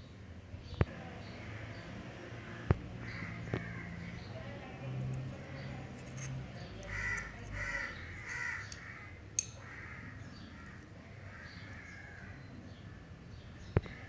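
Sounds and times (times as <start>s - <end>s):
crows cawing: 2.4s - 4.3s, 6.8s - 13.2s, 13.8s - 14.0s.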